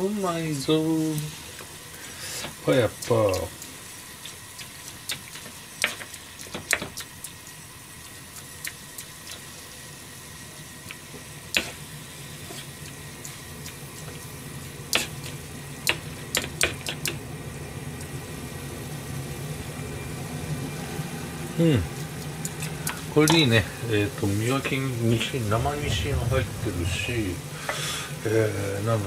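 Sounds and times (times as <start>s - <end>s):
steady low noise: 23.0s - 29.0s.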